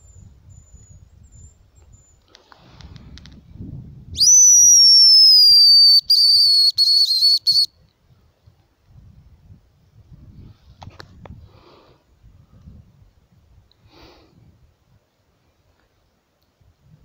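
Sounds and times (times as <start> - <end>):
high bird call whistle: 4.2 - 7.7.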